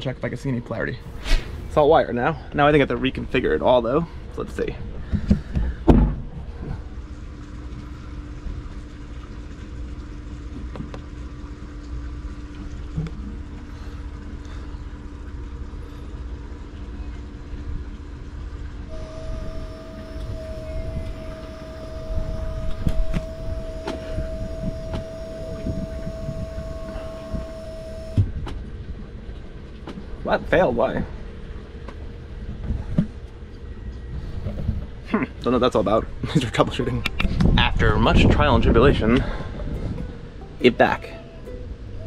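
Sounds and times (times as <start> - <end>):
higher steady whine: 1.0 - 4.1, 18.9 - 28.3
motor humming: 18.9 - 28.3.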